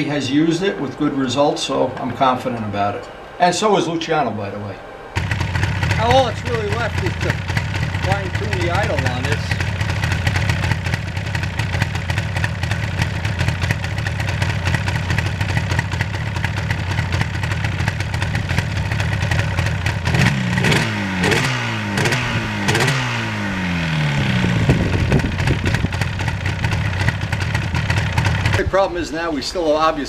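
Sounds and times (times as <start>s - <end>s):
engine revving: 5.0s - 29.0s
motorcycle engine idling: 5.2s - 30.0s.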